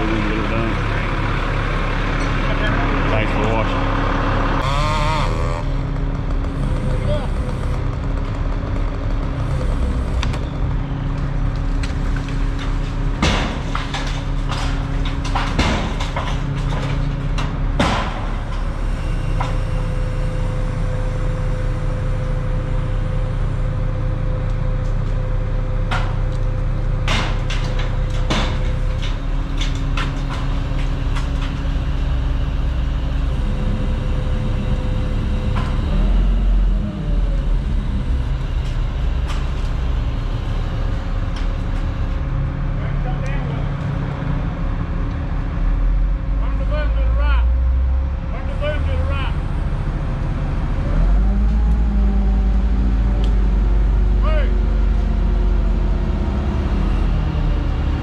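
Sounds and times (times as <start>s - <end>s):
diesel engine running: 0.0s - 58.0s
sharp clicks and knocks: 11.1s - 18.7s.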